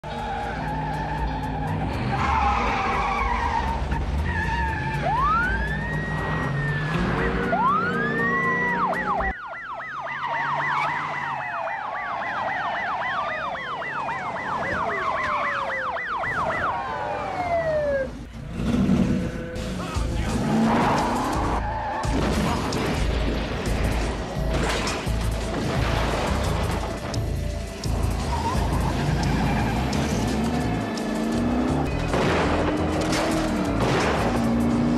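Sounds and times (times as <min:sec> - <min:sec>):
police siren wailing: 0:00.0 - 0:18.3, 0:26.8 - 0:32.0
car engines running: 0:00.0 - 0:34.9
police siren yelp: 0:04.5 - 0:18.3
siren tones gliding downward: 0:04.7 - 0:18.3.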